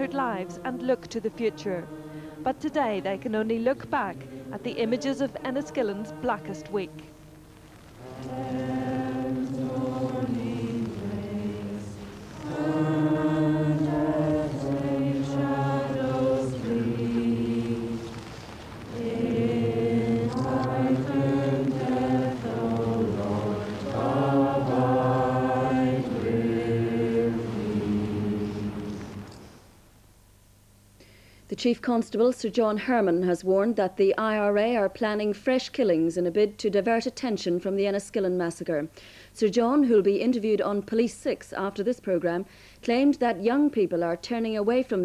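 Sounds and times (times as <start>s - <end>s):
choir singing: 0.0s - 7.2s, 8.0s - 29.6s.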